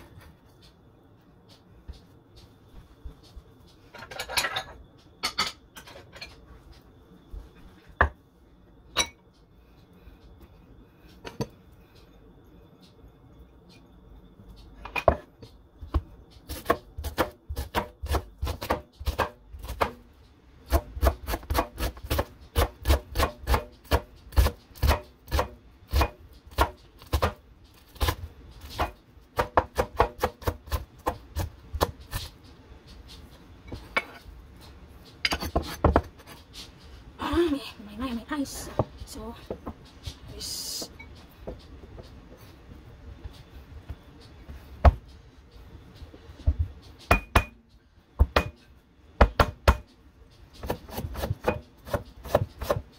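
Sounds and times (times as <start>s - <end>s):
knife chopping on cutting board: 15.9s - 20.0s, 20.7s - 27.4s, 28.0s - 32.3s, 50.6s - 52.8s.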